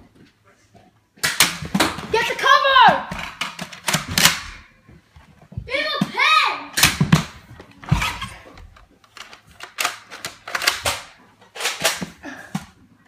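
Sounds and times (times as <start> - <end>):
toy dart blasters clacking and firing: 1.2 - 2.0.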